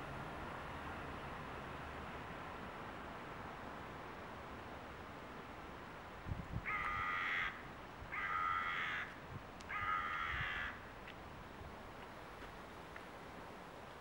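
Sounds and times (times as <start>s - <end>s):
crow cawing: 6.7s - 10.8s.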